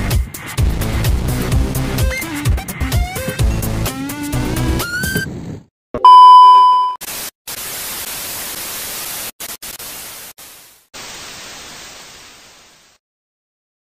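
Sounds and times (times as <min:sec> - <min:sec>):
electronic beep: 0:06.0 - 0:07.0
static hiss: 0:07.0 - 0:13.0.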